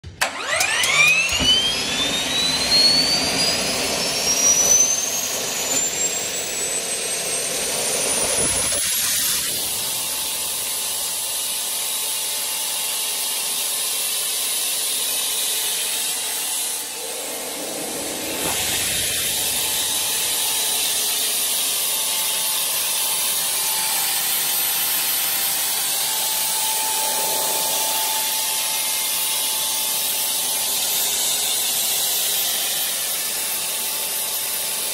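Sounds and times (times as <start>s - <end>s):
turbine whine: 0.0s - 34.9s
rushing air and exhaust: 1.4s - 11.6s, 16.1s - 29.4s.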